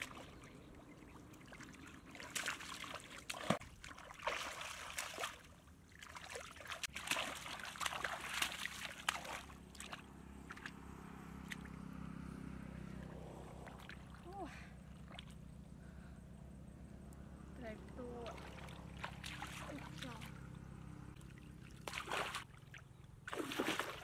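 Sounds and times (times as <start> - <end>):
hands splashing in muddy water: 0.0 - 10.7, 18.2 - 20.3, 21.2 - 24.0.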